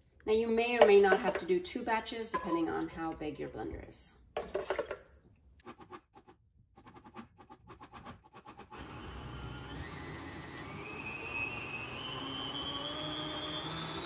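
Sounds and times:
blender whirring: 8.7 - 14.0.

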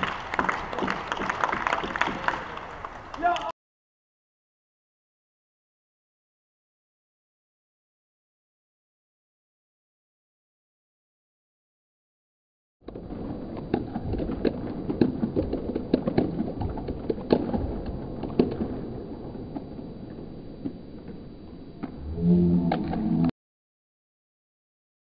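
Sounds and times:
sharp knocks and thuds: 12.9 - 18.9
background hum: 12.9 - 23.3.

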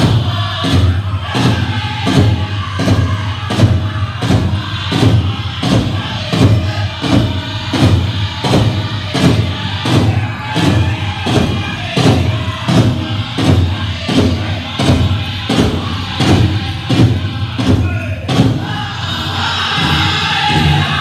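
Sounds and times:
big drum steady beat: 0.0 - 21.0
people singing: 0.0 - 21.0.

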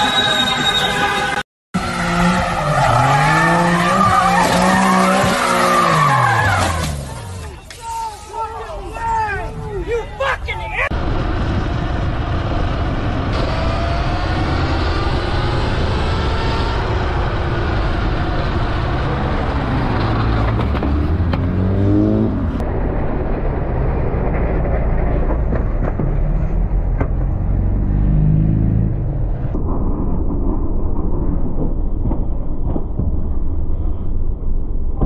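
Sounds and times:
wind and road noise: 0.0 - 35.0
car engine accelerating: 11.2 - 29.6.

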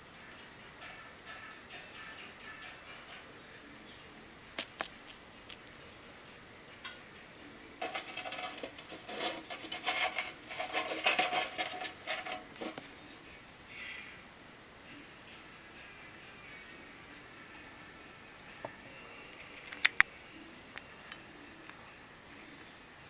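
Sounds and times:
gecko chewing insect crunches: 4.5 - 5.8, 19.3 - 20.1.

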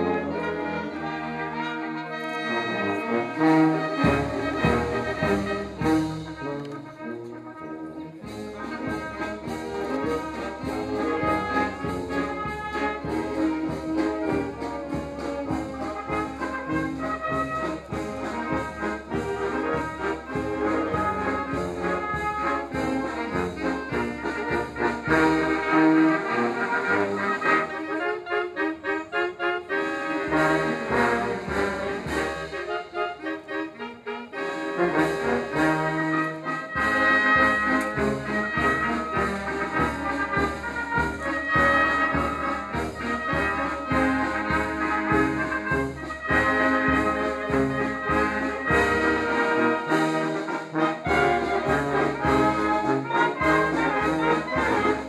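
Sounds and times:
brass band playing: 0.0 - 55.0.

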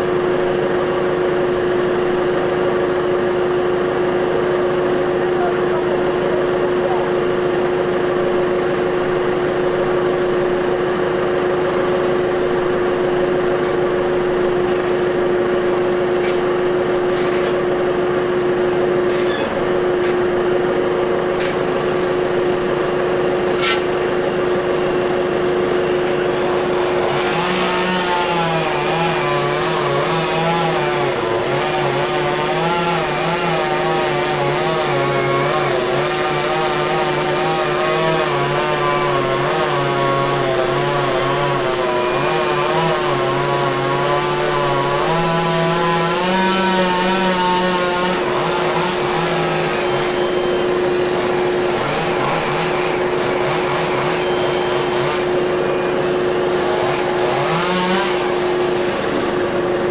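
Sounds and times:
chainsaw engine running: 0.0 - 59.9
second engine wavering in pitch: 50.0 - 51.0.

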